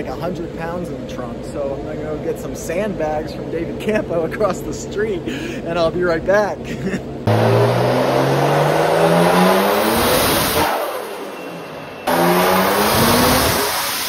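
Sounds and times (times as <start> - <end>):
turbocharged engine revving: 7.2 - 14.0.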